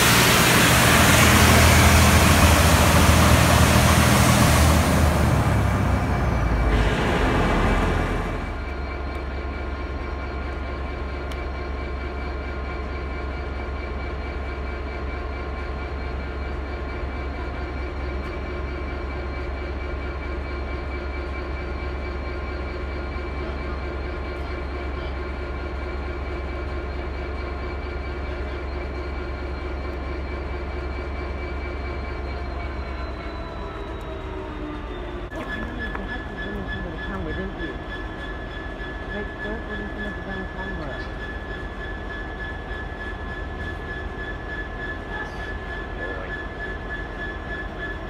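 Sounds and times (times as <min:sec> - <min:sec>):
diesel train engine idling: 0:00.0 - 0:48.0.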